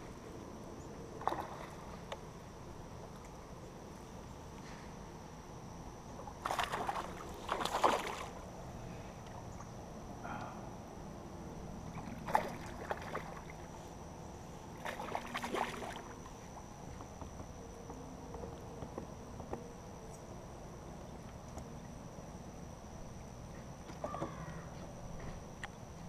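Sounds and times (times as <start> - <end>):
fish splashing water: 1.2 - 2.0, 6.4 - 8.5, 11.9 - 13.7, 14.8 - 16.2.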